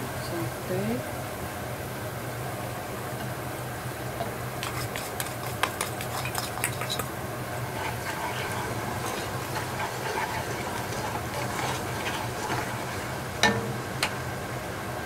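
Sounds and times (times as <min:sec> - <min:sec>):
steady low hum: 0:00.0 - 0:15.0
wooden spatula stirring: 0:04.2 - 0:13.4
food sizzling in oil: 0:04.3 - 0:14.7.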